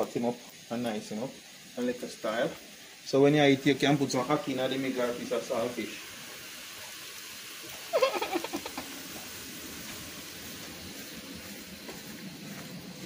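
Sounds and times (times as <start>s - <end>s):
dumplings sizzling in hot oil: 0.0s - 13.0s.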